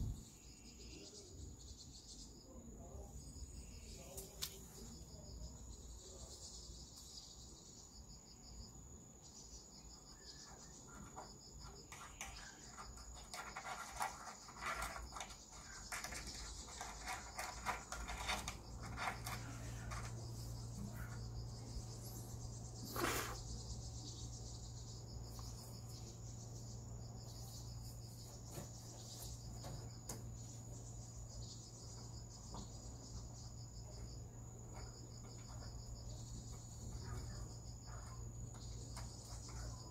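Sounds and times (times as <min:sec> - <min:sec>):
crickets trilling: 0:00.0 - 0:39.9
light scratches and taps: 0:10.9 - 0:21.3, 0:28.2 - 0:30.5, 0:34.7 - 0:35.8, 0:36.4 - 0:39.9
scrape: 0:13.2 - 0:20.2, 0:22.8 - 0:23.5.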